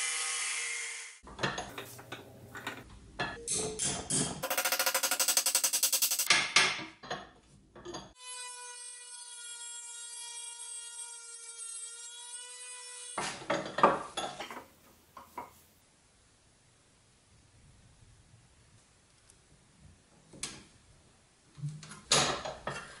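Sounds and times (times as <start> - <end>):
rotary tool cutting metal: 4.2 - 6.3.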